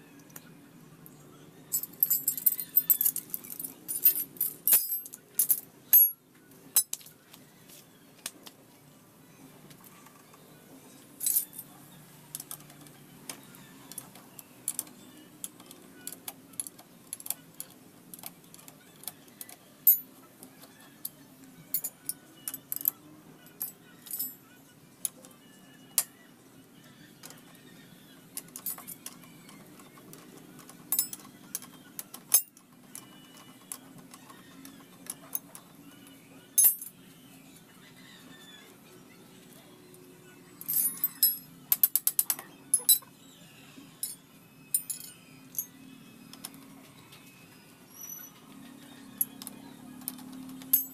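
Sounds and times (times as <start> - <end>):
metal wrench clinking on bolt: 1.7 - 6.1, 23.6 - 24.4, 32.3 - 32.6, 36.6 - 36.9, 44.0 - 45.7.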